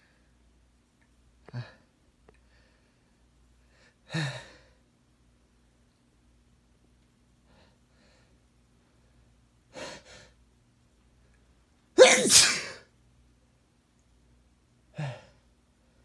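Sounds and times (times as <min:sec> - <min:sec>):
man sneezing: 0:12.0 - 0:12.8.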